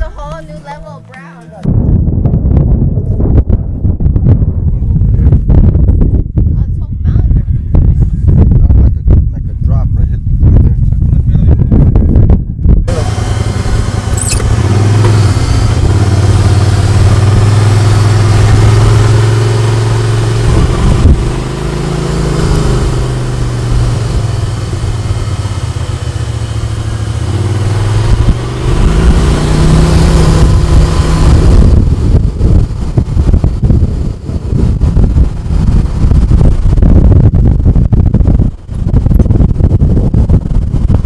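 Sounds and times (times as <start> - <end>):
off-road vehicle engine: 10.0 - 41.0.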